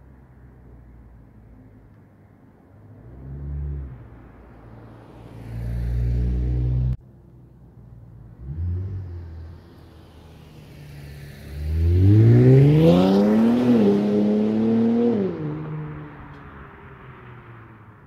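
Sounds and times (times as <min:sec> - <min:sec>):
car engine revving and accelerating: 0:05.1 - 0:07.0, 0:08.4 - 0:16.3.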